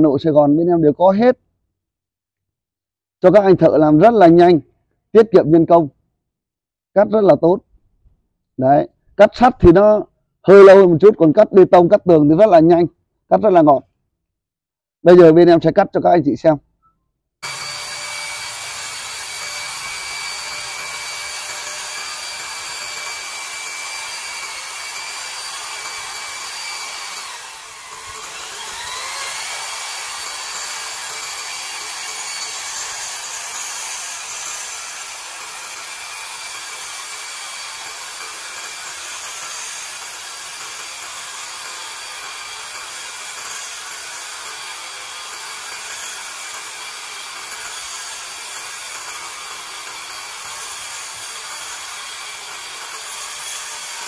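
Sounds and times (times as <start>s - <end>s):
concrete saw grinding whine: 17.4s - 54.0s.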